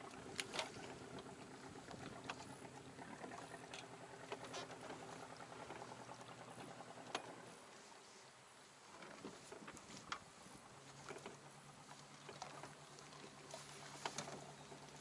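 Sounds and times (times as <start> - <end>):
low steady hum: 0.0 - 15.0
water lapping against boat hull: 0.0 - 15.0.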